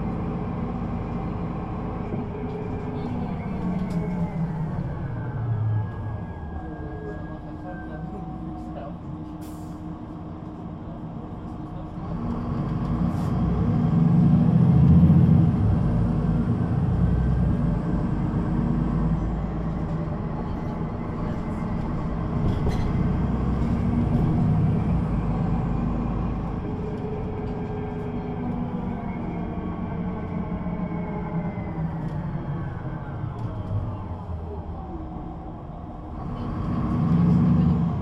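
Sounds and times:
bus diesel engine pulling away: 0:00.0 - 0:38.0.

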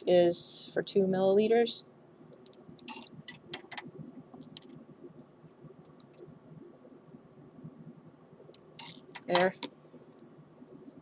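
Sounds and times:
glass test tubes clicking: 0:02.8 - 0:04.8, 0:08.8 - 0:09.7.

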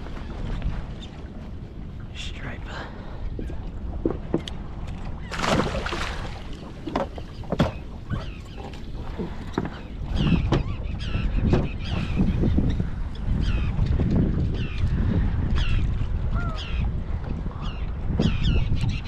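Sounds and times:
water lapping at boat: 0:00.0 - 0:19.0
wind buffeting microphone: 0:00.0 - 0:19.0
knocks and thumps on boat: 0:03.3 - 0:16.5.

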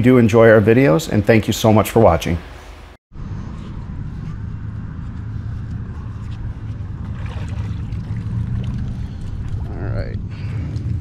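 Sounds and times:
low engine drone: 0:03.1 - 0:11.0.

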